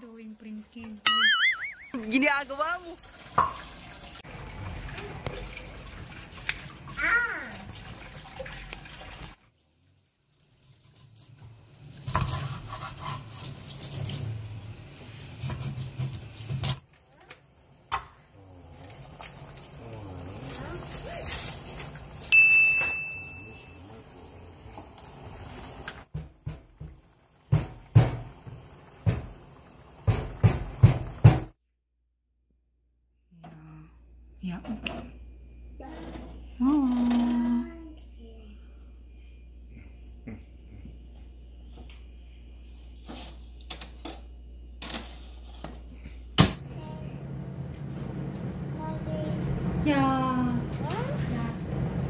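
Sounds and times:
steady low hum: 33.4s - 52.0s.

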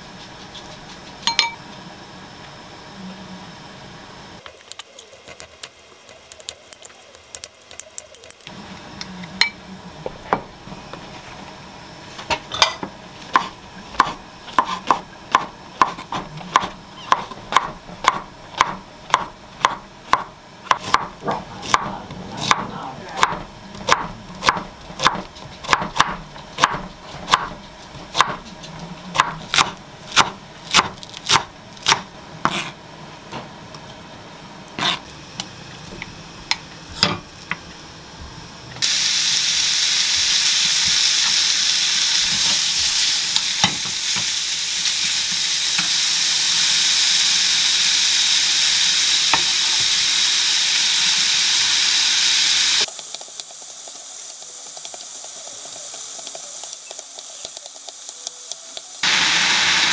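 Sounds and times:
spoon clinking glass bowl: 1.2s - 1.6s.

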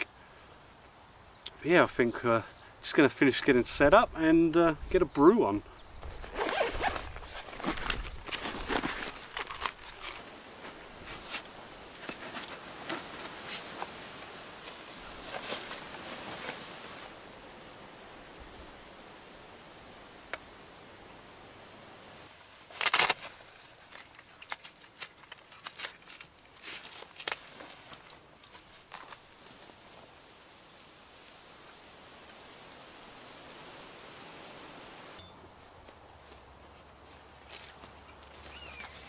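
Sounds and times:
faint hiss: 0.0s - 7.2s, 9.7s - 24.4s, 26.5s - 37.7s
fabric bag rustling: 6.1s - 13.9s.

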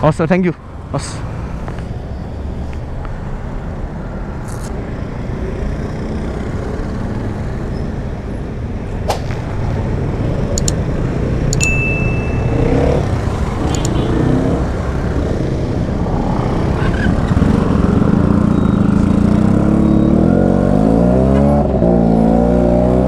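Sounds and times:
sharp clicks: 10.5s - 10.8s, 13.6s - 14.0s
short high beep: 11.6s - 13.0s.

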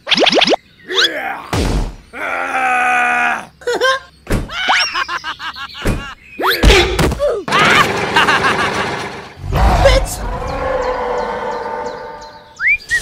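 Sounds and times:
fast chirps: 0.0s - 1.1s
cartoon thuds: 1.5s - 2.0s, 5.8s - 7.3s.

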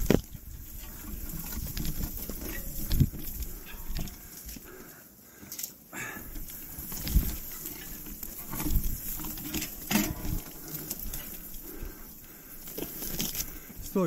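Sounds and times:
heavy breathing and grunts: 3.5s - 6.7s.

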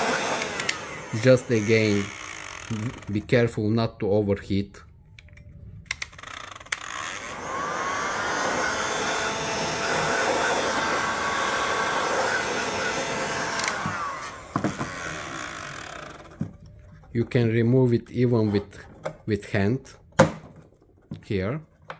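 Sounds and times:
heat gun fan motor whining: 0.0s - 3.2s, 5.9s - 17.0s.

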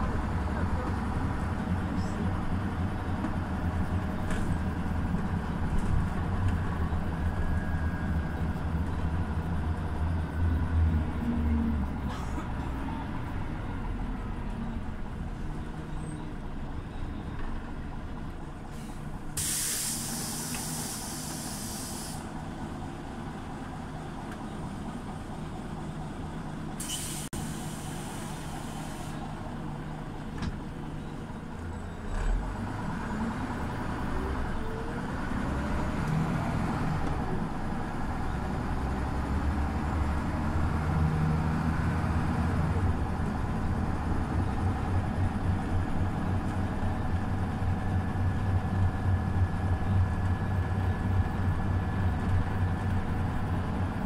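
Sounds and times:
bus engine rumble: 0.0s - 54.0s
compressed air hiss: 18.7s - 22.3s, 26.8s - 29.2s.

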